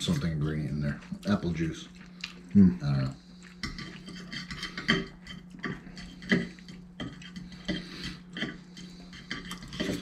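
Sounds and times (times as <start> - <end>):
chewing and slurping: 0.0 - 10.0
forks scraping ceramic plates: 3.6 - 10.0.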